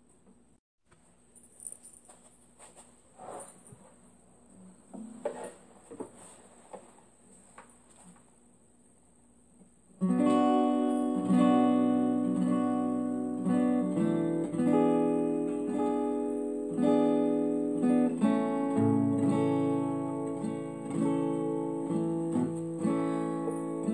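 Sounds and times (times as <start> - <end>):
acoustic guitar strumming chords: 10.0 - 23.9.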